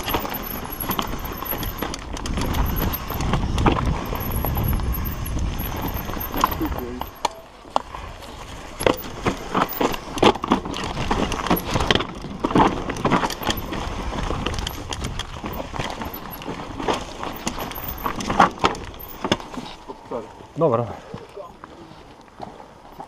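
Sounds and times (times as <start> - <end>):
bike knocking and rattling: 0.0 - 20.5
bike tyres crunching over stones: 0.0 - 23.0.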